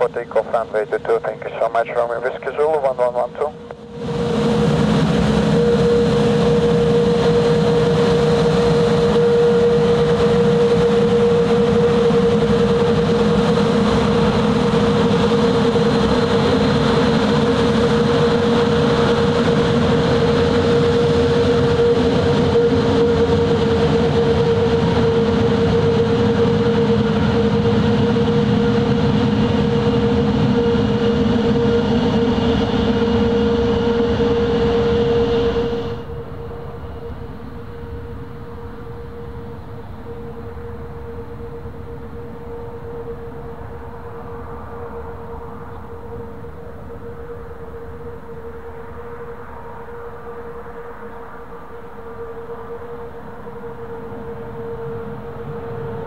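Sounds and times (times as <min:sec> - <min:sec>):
jet engines droning: 0:00.0 - 0:56.0.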